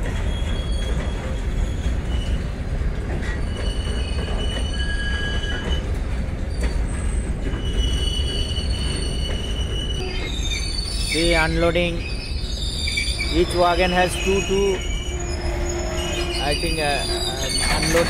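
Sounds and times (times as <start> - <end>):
steel wheels rumbling on rail: 0.0 - 18.0
high-pitched wagon squeals: 3.2 - 5.9, 6.5 - 18.0.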